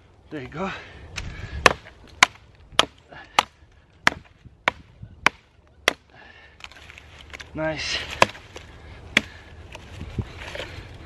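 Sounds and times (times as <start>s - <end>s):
hatchet chopping dry sticks: 1.2s - 9.4s.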